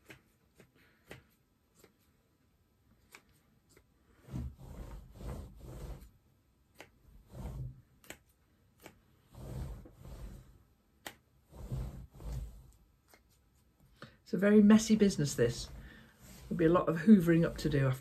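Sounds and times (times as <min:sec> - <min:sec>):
fabric strips rustling: 0:11.4 - 0:18.0.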